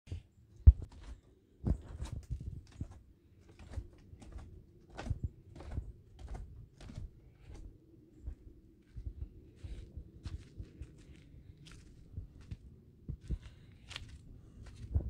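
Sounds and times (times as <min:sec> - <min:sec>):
footsteps crunching on gravel: 0:08.9 - 0:15.0.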